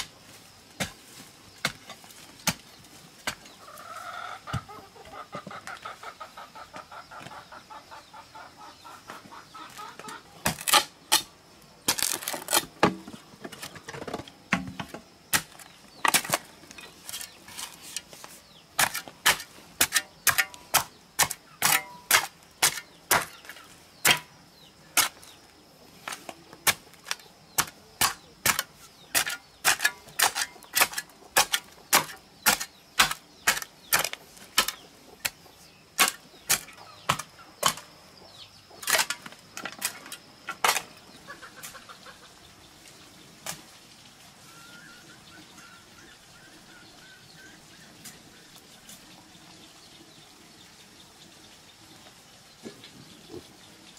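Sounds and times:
hen clucking: 3.6 - 10.4, 41.2 - 42.5
shovel chopping into clay: 18.8 - 23.5, 26.1 - 35.4, 36.0 - 37.8.

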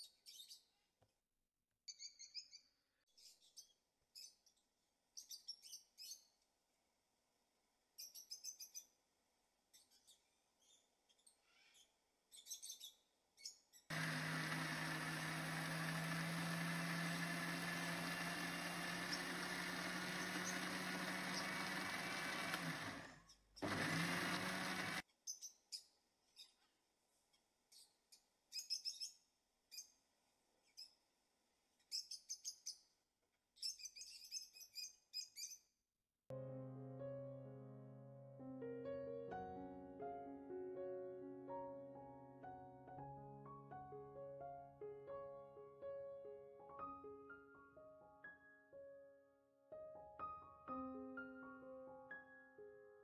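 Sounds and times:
mixer grinder motor running: 13.9 - 25.0.

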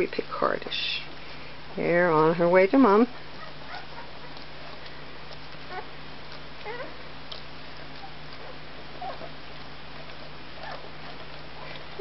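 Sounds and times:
puppy squeaking: 3.3 - 5.9, 6.6 - 9.4, 10.0 - 12.0.

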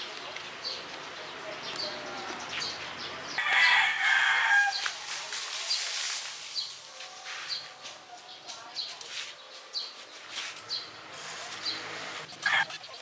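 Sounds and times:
small birds chirping: 0.0 - 3.5, 4.7 - 13.0
rooster crowing: 3.4 - 4.8.

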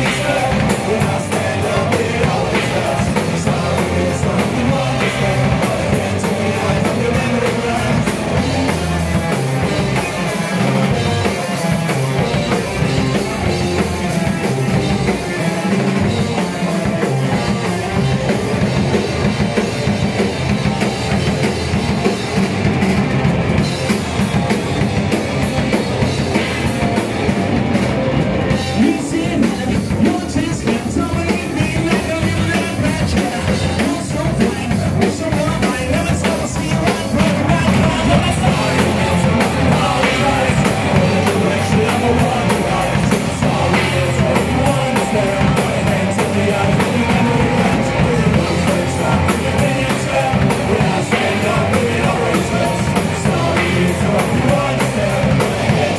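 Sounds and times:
person singing into a microphone: 0.0 - 9.1, 28.7 - 55.9
bass guitar: 0.0 - 55.9
distorted electric guitars: 0.0 - 55.9
drum kit: 0.0 - 55.9.

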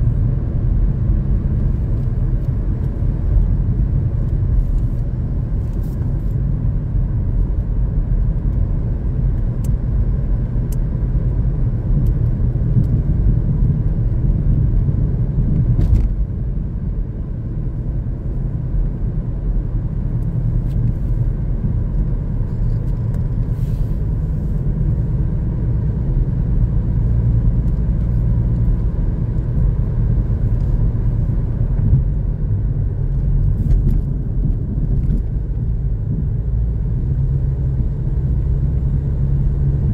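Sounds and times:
car tyres and engine rumble: 0.0 - 39.9.

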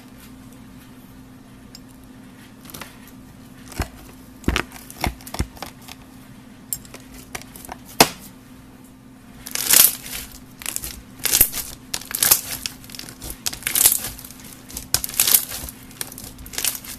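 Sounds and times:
crackling beads in slime: 9.4 - 16.9.

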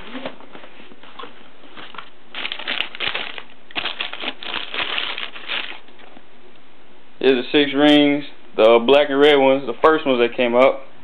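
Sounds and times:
tissue paper rustling: 0.0 - 6.0.

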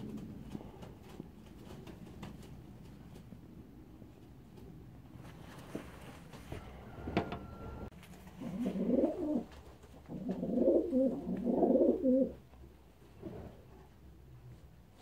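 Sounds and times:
pigeons cooing: 8.3 - 12.4.

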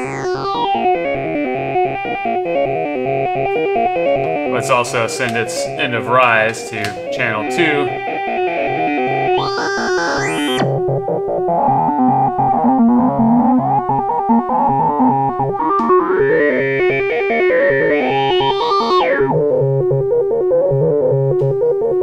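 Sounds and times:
repeating low synth note: 0.0 - 0.9, 9.3 - 10.8
synthesizer sequence of stepping notes: 0.0 - 2.4, 6.9 - 11.1, 13.7 - 20.0
bright synth tone sweeps: 9.3 - 10.7.

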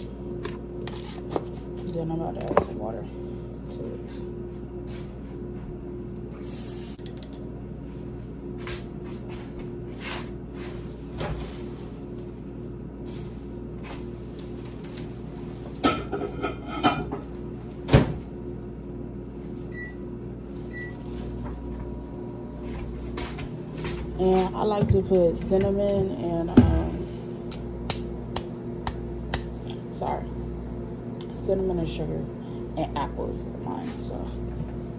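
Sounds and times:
steady hum: 0.0 - 34.9
dishes clattering: 15.8 - 17.2.

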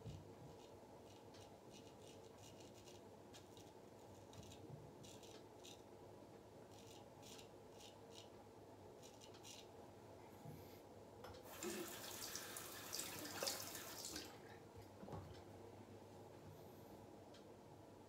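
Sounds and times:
razor scraping stubble: 0.5 - 5.8, 6.7 - 8.3.

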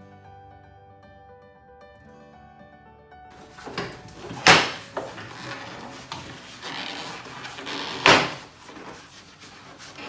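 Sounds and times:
plastic rustling and scraping: 3.4 - 10.0.

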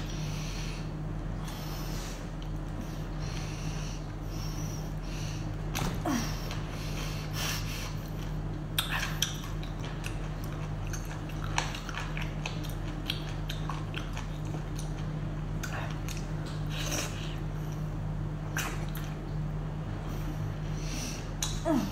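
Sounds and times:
steady low hum: 0.0 - 21.9
wet chewing and lip-smacking: 8.0 - 17.8.

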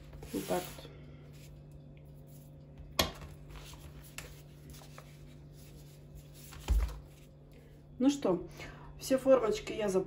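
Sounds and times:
low steady hum: 0.0 - 10.0
paper rustling: 3.2 - 7.4.

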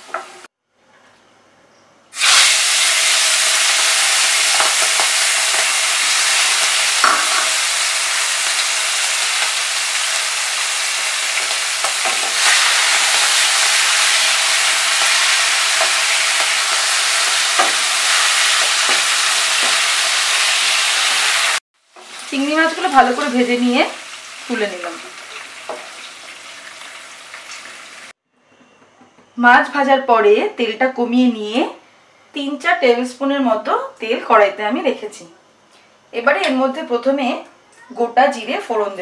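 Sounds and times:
prawns sizzling in oil: 2.2 - 28.2.

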